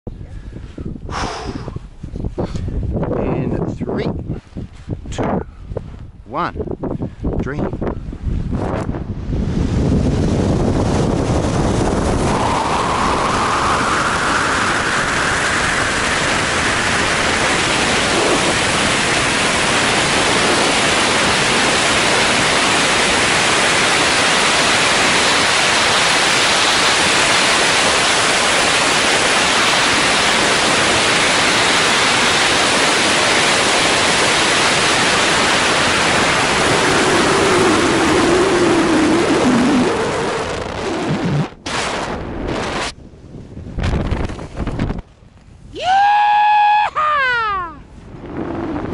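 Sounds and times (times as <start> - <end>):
wind roaring over microphone: 0.1 - 48.9
faint rising whistle: 12.2 - 15.4.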